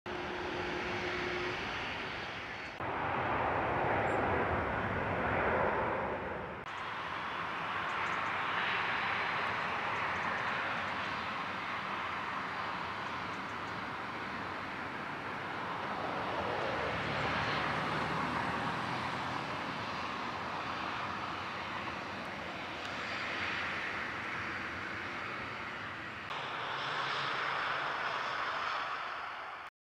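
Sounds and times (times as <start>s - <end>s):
jet engines rushing: 0.1s - 29.7s.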